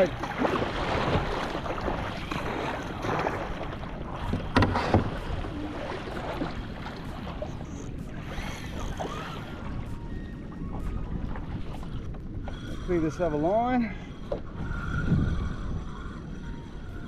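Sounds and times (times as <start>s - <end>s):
kayak paddle splashing: 0.0s - 9.9s
wind buffeting microphone: 0.0s - 17.0s.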